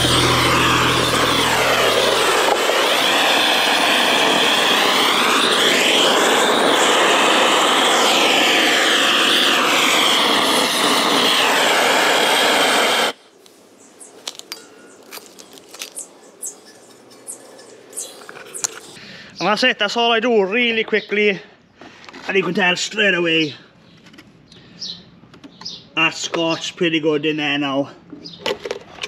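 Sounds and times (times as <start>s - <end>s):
blowtorch rushing hiss: 0.0s - 13.2s, 14.0s - 19.0s.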